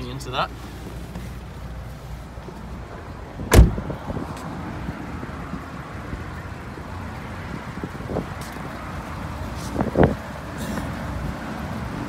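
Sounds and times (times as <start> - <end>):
heavy low thump: 3.4 - 4.0.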